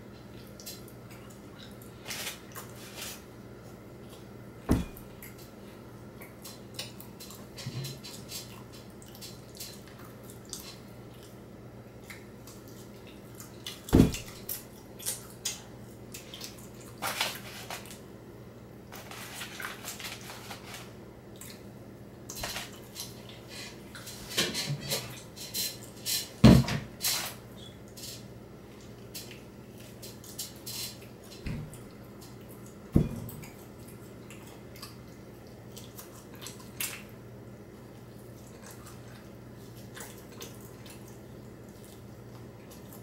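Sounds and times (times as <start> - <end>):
dishes and cutlery clinking: 22.4 - 26.3.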